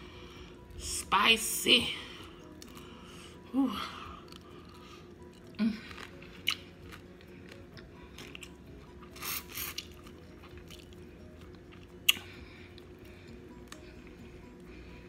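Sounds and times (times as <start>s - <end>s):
soft chewing: 2.2s - 3.1s, 4.0s - 14.8s.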